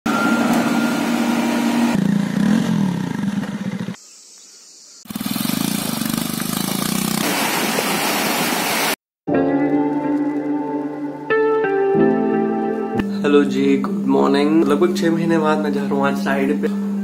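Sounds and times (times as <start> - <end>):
vehicle engine running: 0.1 - 4.0, 5.1 - 7.5.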